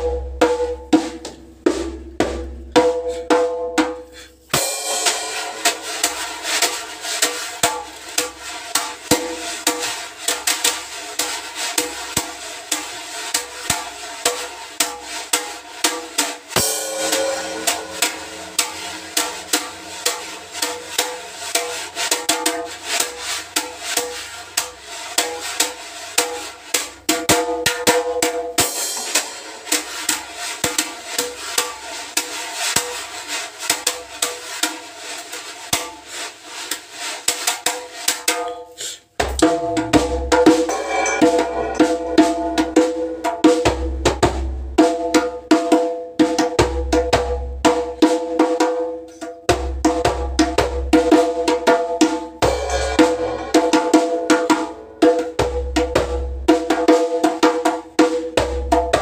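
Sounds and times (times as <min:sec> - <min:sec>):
wire brush strokes on drum: 0:04.0 - 0:27.0, 0:28.6 - 0:43.9, 0:52.4 - 0:55.4.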